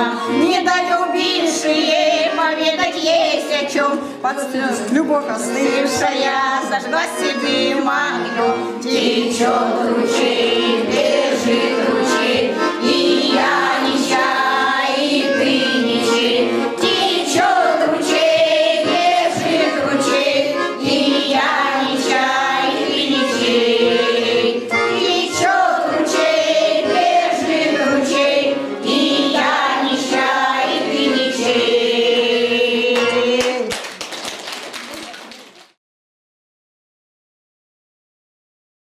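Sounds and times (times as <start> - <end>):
women's choir singing: 0.0 - 33.8
music with steady beat: 9.9 - 23.9.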